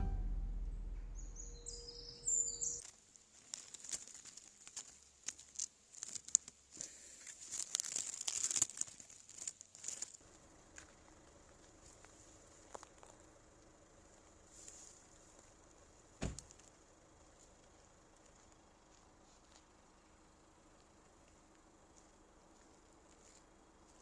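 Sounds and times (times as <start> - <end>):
music: 0.0 - 0.6
dry leaves rustling and crackling: 2.8 - 13.2.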